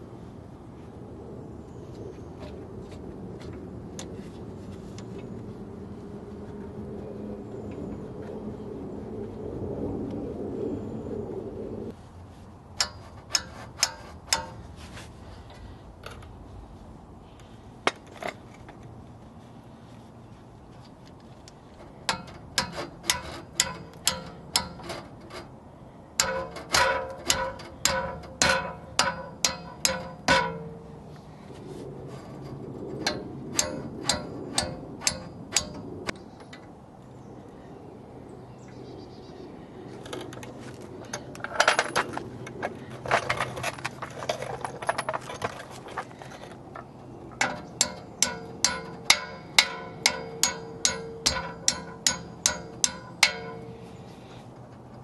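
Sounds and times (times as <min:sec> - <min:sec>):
hammer tapping metal punch: 0:22.1 - 0:25.0, 0:26.2 - 0:30.9, 0:33.0 - 0:35.9, 0:47.4 - 0:53.8
metal clinks: 0:47.4 - 0:53.8.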